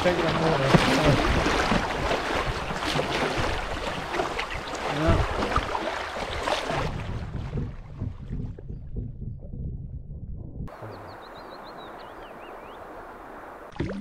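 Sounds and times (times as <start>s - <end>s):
paddle strokes splashing: 0.0s - 8.6s
low thump: 6.9s - 10.8s.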